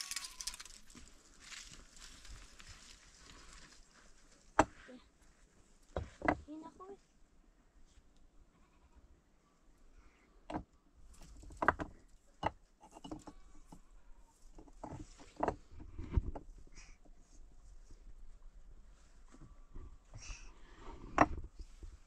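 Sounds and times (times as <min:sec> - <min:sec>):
faint rustling: 0:00.0 - 0:06.8.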